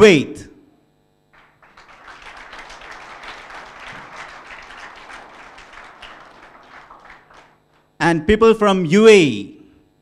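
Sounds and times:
audience applauding: 1.4 - 7.9.

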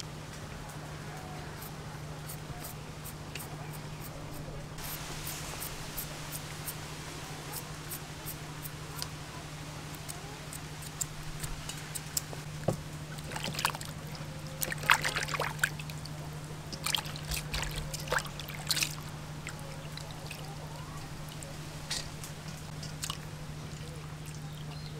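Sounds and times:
steady low hum: 0.0 - 24.9
water splashing and trickling: 4.8 - 24.9
hands sloshing cabbage in water: 13.2 - 21.6.

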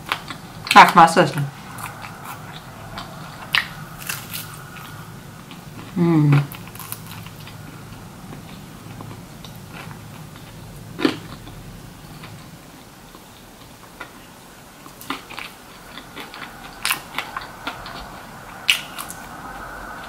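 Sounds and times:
chewing with mouth clicks: 5.5 - 20.0.

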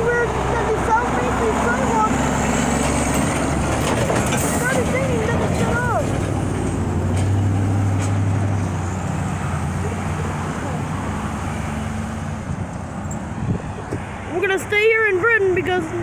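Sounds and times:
cars driving by: 0.0 - 16.0
tyre and road noise: 0.0 - 16.0.

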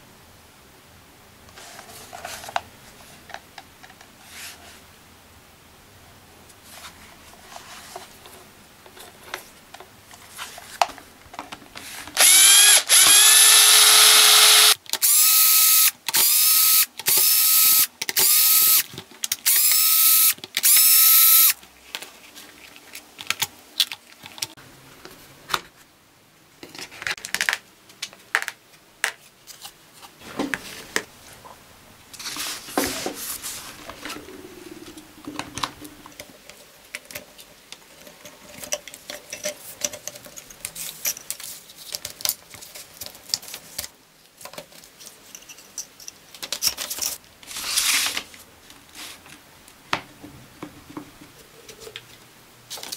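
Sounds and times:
electric drill whining: 12.2 - 18.8, 19.5 - 21.6.

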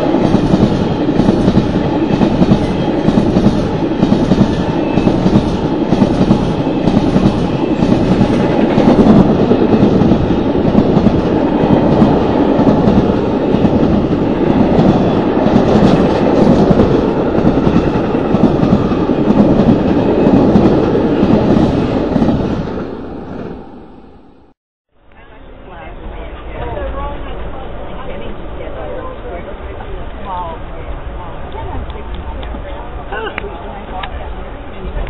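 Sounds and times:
train coaches rumbling past: 0.0 - 24.6.

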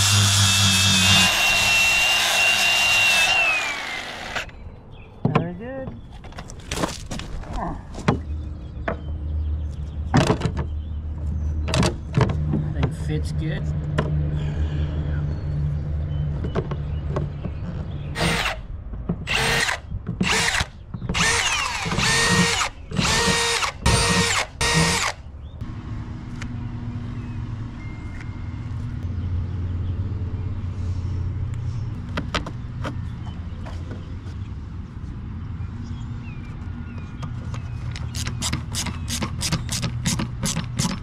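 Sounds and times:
power drill whirring: 0.0 - 4.5, 18.2 - 18.6, 19.3 - 25.2.

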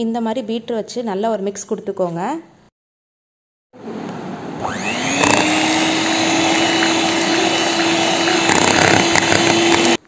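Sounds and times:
electric hand mixer whine: 4.6 - 10.0.

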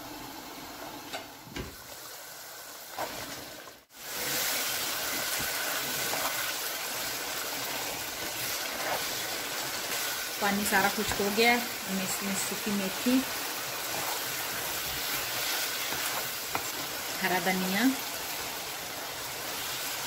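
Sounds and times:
curry sizzling: 0.2 - 20.0
curry bubbling in a pan: 2.7 - 17.2.

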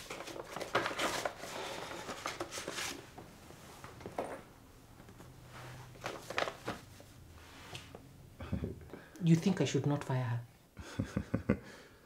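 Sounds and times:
paper rustling: 0.0 - 3.2, 5.2 - 8.0.

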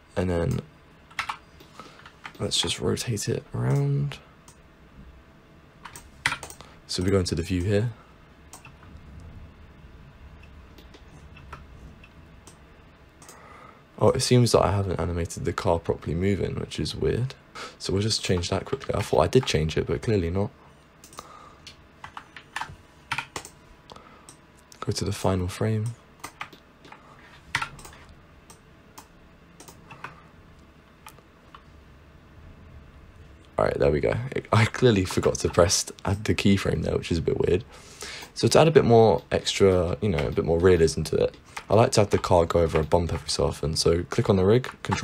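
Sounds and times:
low room and microphone hum: 0.0 - 45.0
computer mouse and keyboard clicks: 5.8 - 7.8, 8.5 - 8.8, 10.7 - 12.6, 21.0 - 23.6, 25.8 - 30.2.

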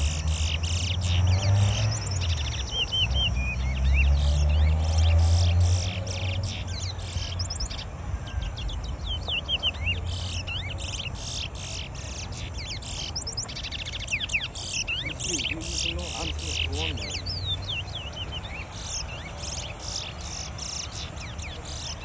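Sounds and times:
songbirds chirping and whistling: 0.0 - 22.0.

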